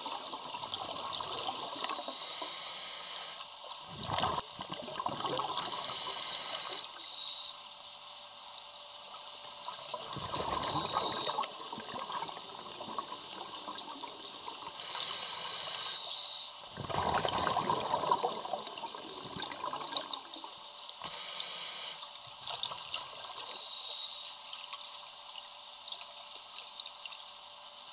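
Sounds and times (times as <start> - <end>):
regulator hissing inhales: 1.7 - 3.4, 5.7 - 7.6, 10.6 - 11.4, 14.8 - 16.6, 21.0 - 22.0, 23.5 - 24.4
bubbling exhales underwater: 3.9 - 6.8, 9.8 - 14.8, 16.7 - 20.6.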